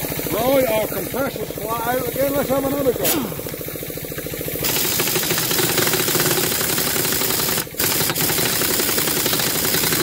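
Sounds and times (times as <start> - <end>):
air compressor hum: 0.0 - 10.0
pneumatic impact wrench hammering: 3.0 - 3.6, 4.2 - 10.0.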